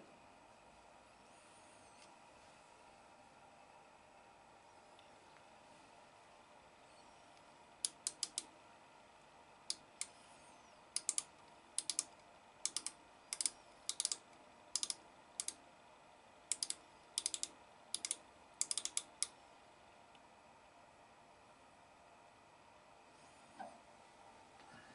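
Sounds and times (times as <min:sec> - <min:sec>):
micrometer ratchet clicking: 0:11.0 - 0:15.6, 0:16.5 - 0:19.3.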